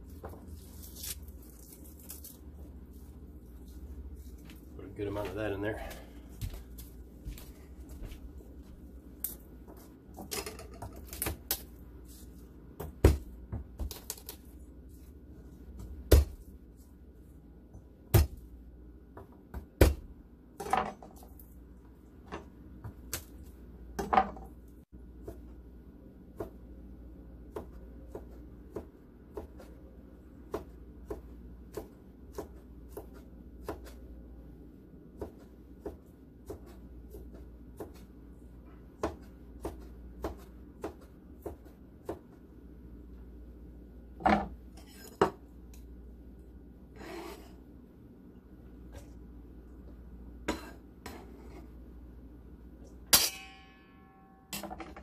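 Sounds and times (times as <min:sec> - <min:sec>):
knife chopping on plastic board: 0:12.8 - 0:14.0, 0:15.8 - 0:16.4.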